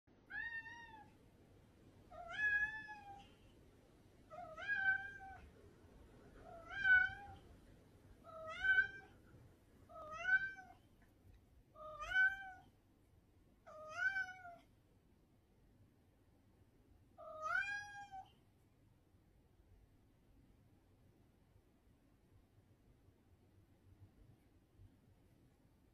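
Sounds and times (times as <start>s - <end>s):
cat meowing: 0.3s - 1.2s, 2.1s - 3.4s, 4.3s - 5.5s, 6.4s - 7.4s, 8.2s - 9.2s, 9.9s - 10.8s, 11.8s - 12.7s, 13.6s - 14.7s, 17.2s - 18.4s.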